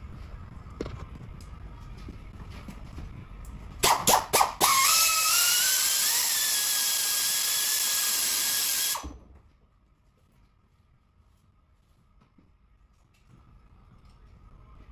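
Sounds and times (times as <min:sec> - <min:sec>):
die grinder whining: 0:04.6 - 0:09.0.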